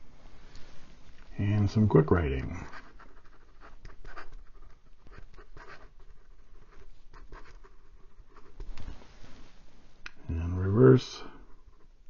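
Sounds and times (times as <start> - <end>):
pen nib scratching paper: 2.7 - 8.6.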